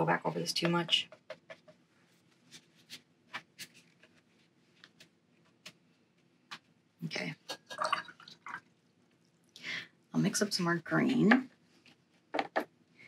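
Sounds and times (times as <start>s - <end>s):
brush tapping on paper: 0.6s - 1.8s.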